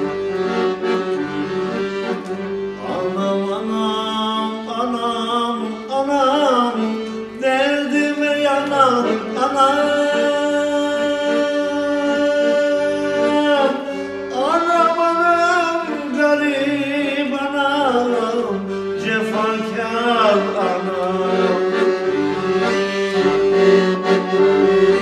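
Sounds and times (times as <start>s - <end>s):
piano accordion chords: 0.0s - 25.0s
man singing folk song: 2.8s - 22.0s.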